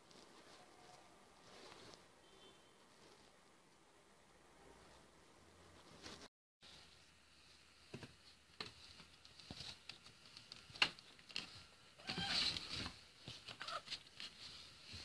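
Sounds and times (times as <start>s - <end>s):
fur rustling against microphone: 0.0s - 2.1s, 5.7s - 7.6s, 8.2s - 15.0s.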